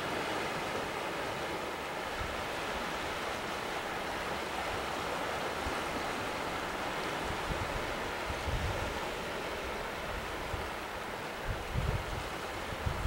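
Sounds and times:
sea waves washing over rocks: 0:00.0 - 0:13.0
wind bumps on microphone: 0:07.3 - 0:09.0, 0:11.4 - 0:13.0.

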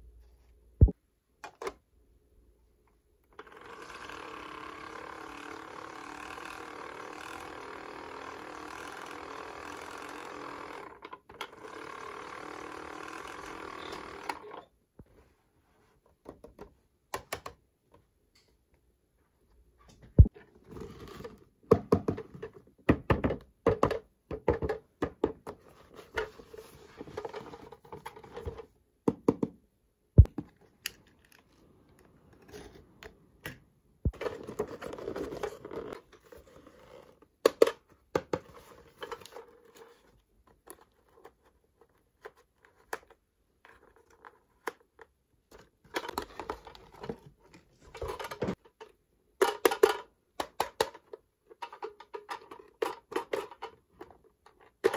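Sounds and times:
packaging rustling and scraping: 0:34.1 - 0:37.2.

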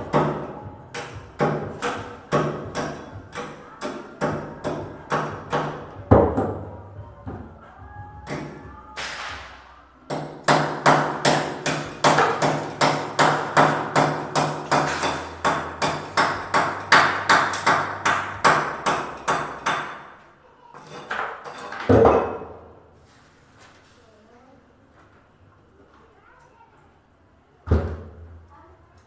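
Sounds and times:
hammer striking a wall: 0:00.0 - 0:06.7, 0:08.2 - 0:20.2, 0:21.0 - 0:22.6.

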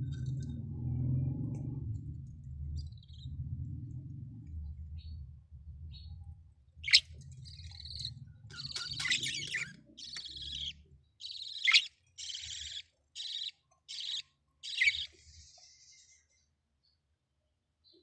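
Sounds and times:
low rumble: 0:00.0 - 0:10.7
chicks raspy begging calls: 0:07.6 - 0:15.1.

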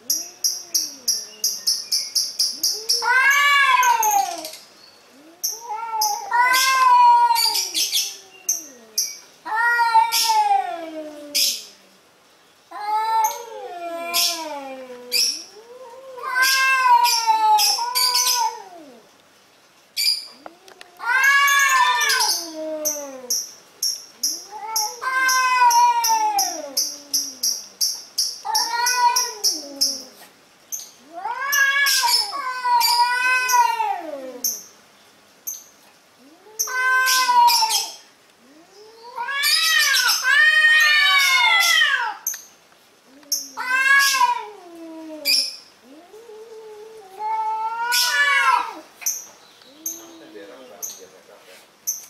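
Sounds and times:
cats yowling: 0:00.1 - 0:01.4, 0:02.5 - 0:11.8, 0:12.7 - 0:19.1, 0:20.3 - 0:23.4, 0:24.2 - 0:27.8, 0:28.4 - 0:30.3, 0:31.0 - 0:34.6, 0:36.2 - 0:42.4, 0:43.0 - 0:50.7.

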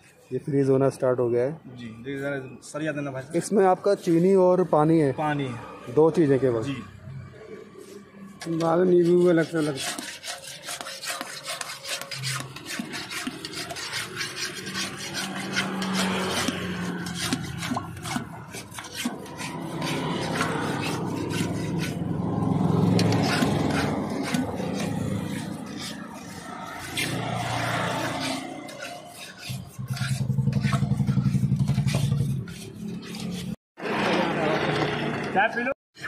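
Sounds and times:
metal rod scraping metal bucket: 0:07.7 - 0:34.5.

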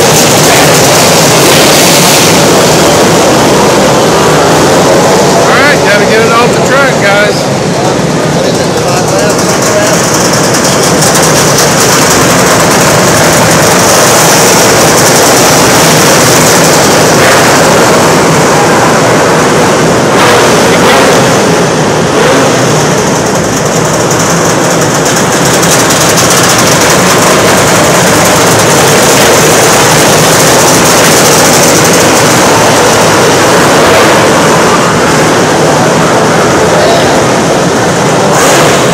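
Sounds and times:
race car engines roaring: 0:00.0 - 0:38.9.

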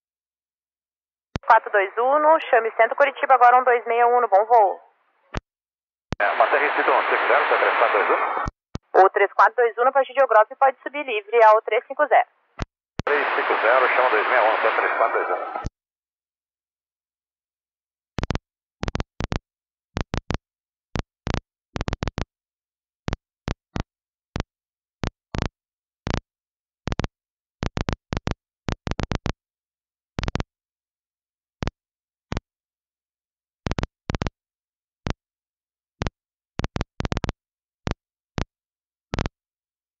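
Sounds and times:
radio static clicks and crackles: 0:06.1 - 0:15.7, 0:18.2 - 0:19.4, 0:21.3 - 0:22.3, 0:30.2 - 0:30.5, 0:33.7 - 0:34.3, 0:36.0 - 0:38.5, 0:39.1 - 0:39.4.

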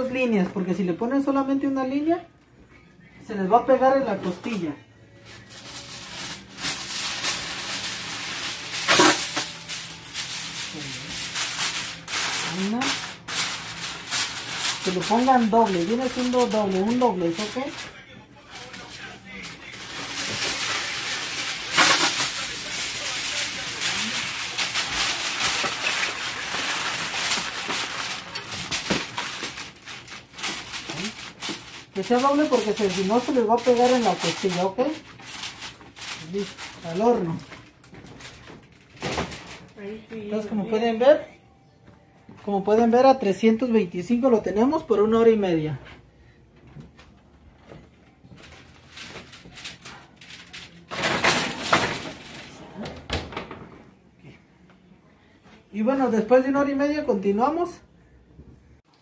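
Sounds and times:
aluminium foil crinkling: 0:03.9 - 0:41.0, 0:48.2 - 0:52.7.

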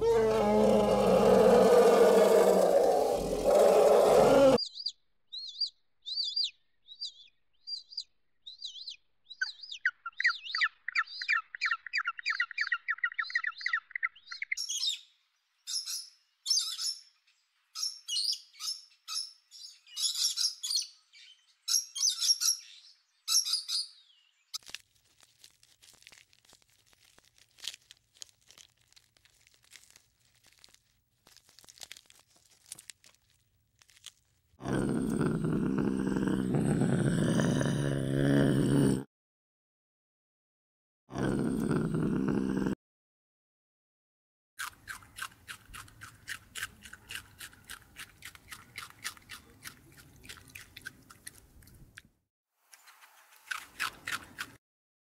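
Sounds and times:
deep animal call: 0:00.0 - 0:04.6.

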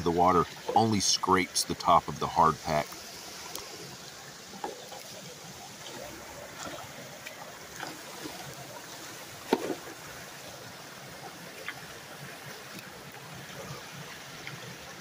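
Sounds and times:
water trickling: 0:00.0 - 0:15.0
tool splashing into water: 0:09.5 - 0:09.9.

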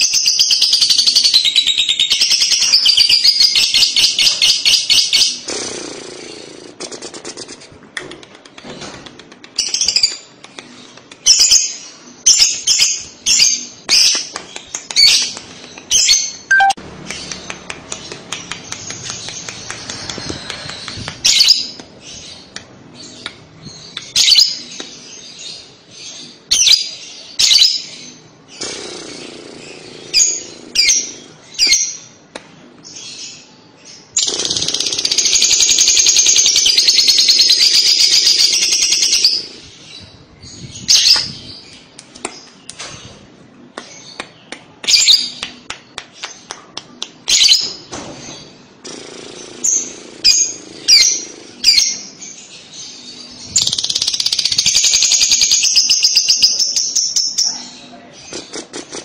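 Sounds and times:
lovebird chirping: 0:15.9 - 0:32.1.

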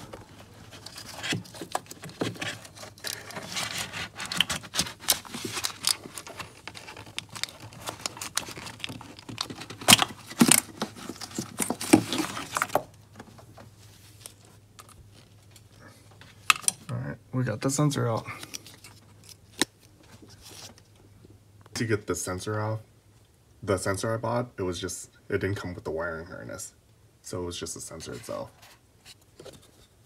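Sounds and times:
plastic parts clicking and scraping: 0:00.0 - 0:13.4, 0:18.3 - 0:20.9.

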